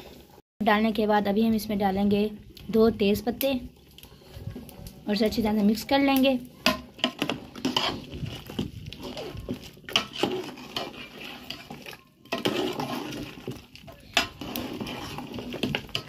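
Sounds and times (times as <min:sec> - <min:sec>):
metal ladle scraping pot: 0:06.6 - 0:16.0.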